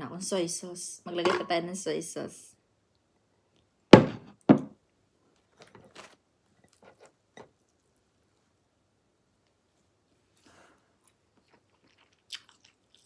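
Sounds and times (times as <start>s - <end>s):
tableware set down on table: 1.2s - 1.5s.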